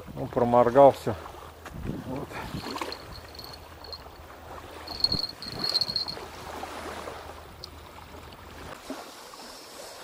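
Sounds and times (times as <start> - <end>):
wind: 0.0 - 10.0
faint water wash: 2.2 - 10.0
insect high thin trill: 2.5 - 6.3.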